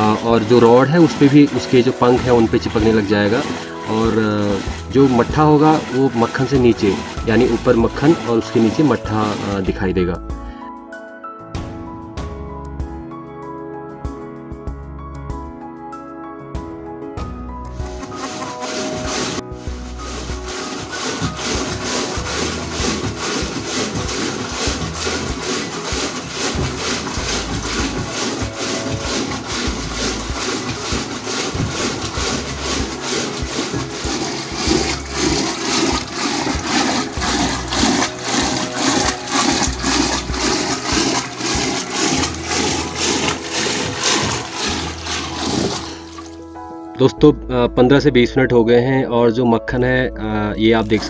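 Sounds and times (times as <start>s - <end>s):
churning rod swishing in pot: 0.0s - 10.2s, 17.7s - 46.6s, 50.7s - 51.0s.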